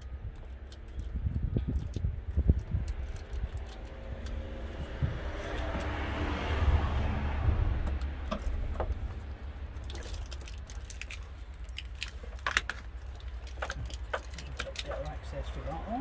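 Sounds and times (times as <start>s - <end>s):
plastic connectors clicking: 0.0s - 4.4s, 9.8s - 15.2s
steady low rumble: 0.0s - 16.0s.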